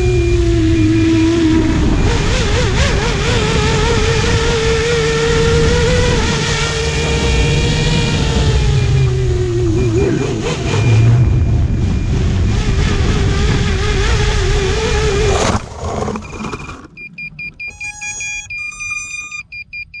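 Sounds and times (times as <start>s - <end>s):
short electronic beeps: 0.0s - 1.6s, 6.7s - 13.2s, 16.1s - 20.0s
drone motors whining: 0.0s - 20.0s
rush of air noise: 6.9s - 15.6s.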